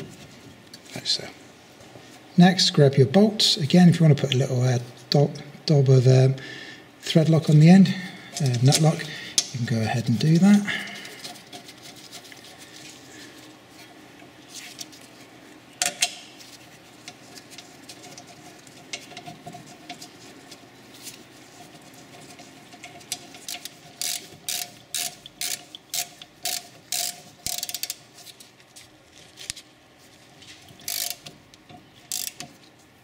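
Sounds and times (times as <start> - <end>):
ratchet wrench clicking: 23.4 - 28.0, 30.8 - 31.3, 32.1 - 32.5.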